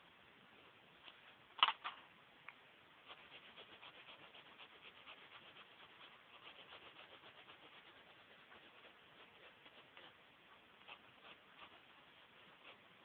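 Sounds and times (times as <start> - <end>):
pencil scratching on paper: 3.0 - 13.0.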